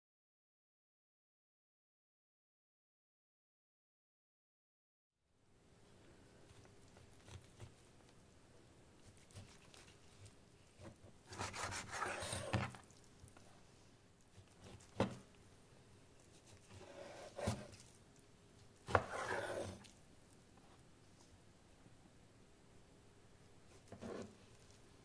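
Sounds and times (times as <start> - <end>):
cleaver rasping through meat: 11.3 - 12.8, 16.4 - 18.0, 18.9 - 19.9.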